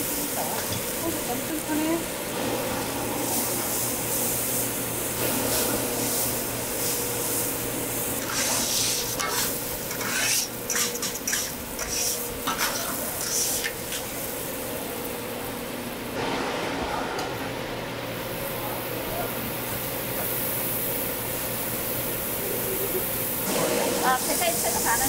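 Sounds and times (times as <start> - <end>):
food sizzling on griddle: 0.0 - 16.3, 18.1 - 25.0
spatula scraping griddle: 8.2 - 14.3.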